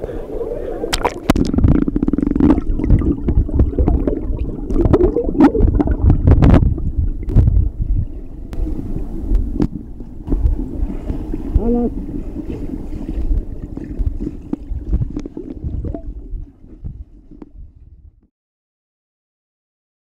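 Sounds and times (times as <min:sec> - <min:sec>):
muffled underwater gurgling: 0:00.0 - 0:18.0
sharp underwater knocks: 0:00.9 - 0:07.7.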